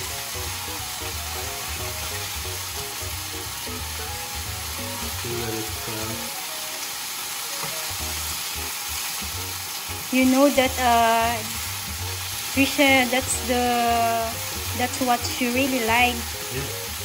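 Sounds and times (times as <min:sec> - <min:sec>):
chicken sizzling in oil: 0:00.0 - 0:17.0.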